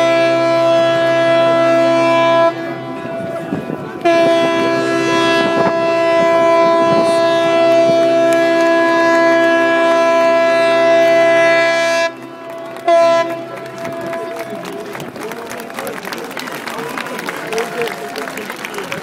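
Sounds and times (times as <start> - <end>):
horn blast chord: 0.0 - 14.5.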